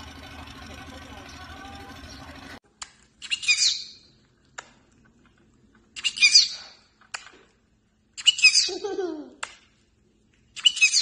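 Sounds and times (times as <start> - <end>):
parrot high calls: 8.2 - 8.8.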